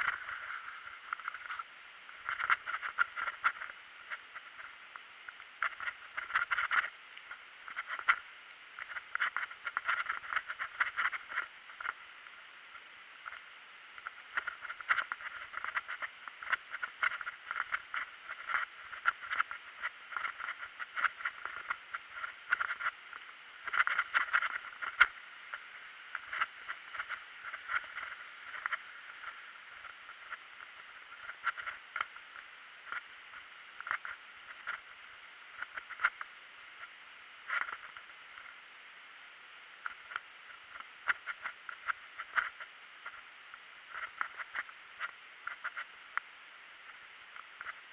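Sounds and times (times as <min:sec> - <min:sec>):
mountain bike rattling on trail: 0:02.2 - 0:04.7, 0:08.8 - 0:12.0, 0:14.0 - 0:23.0, 0:23.6 - 0:25.2, 0:26.1 - 0:32.2.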